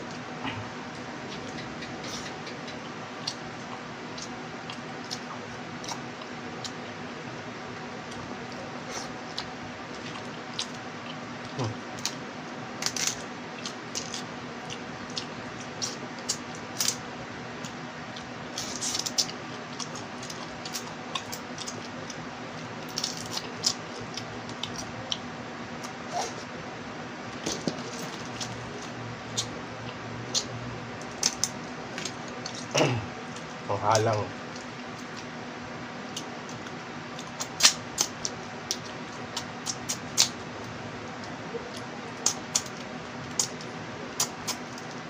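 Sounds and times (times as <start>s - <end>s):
low background hum: 0.0s - 45.0s
crab shells cracking: 12.8s - 14.3s, 22.8s - 23.9s, 30.4s - 32.7s
wet chewing: 17.6s - 26.5s.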